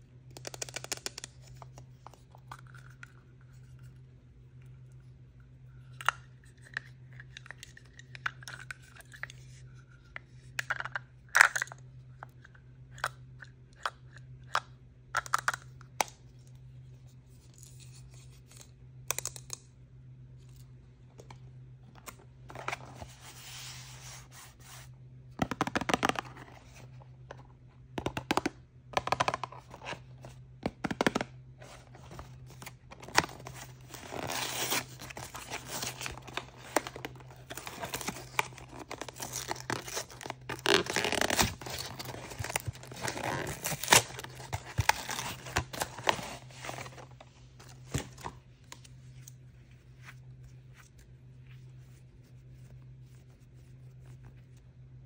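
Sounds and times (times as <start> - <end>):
toy packaging rustling: 29.0 - 48.4
packaging ripping: 32.6 - 47.0.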